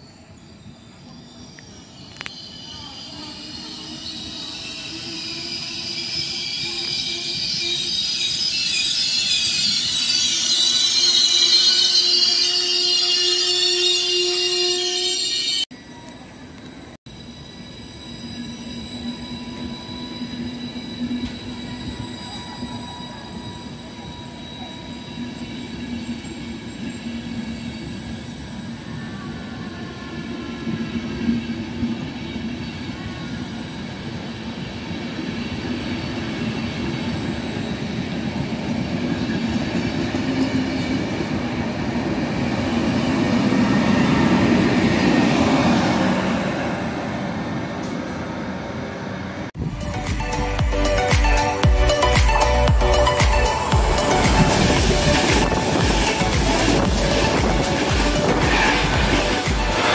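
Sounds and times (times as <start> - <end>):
train wheels squealing on rails: 0.0 - 59.9
train rumble: 18.8 - 59.9.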